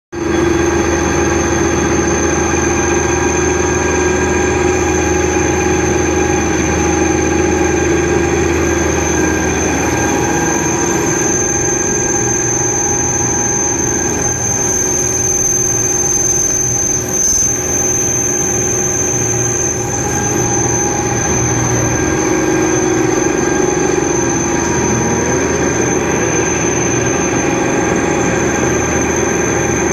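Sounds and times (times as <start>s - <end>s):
metal lathe cutting steel: 0.2s - 29.9s.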